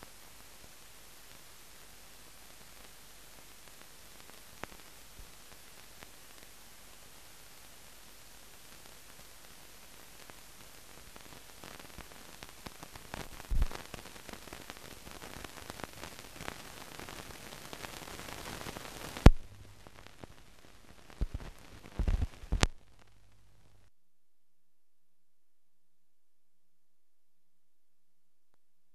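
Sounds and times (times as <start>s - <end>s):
film soundtrack hiss and clicks: 0.0s - 23.9s
loud pop: 19.2s - 19.6s.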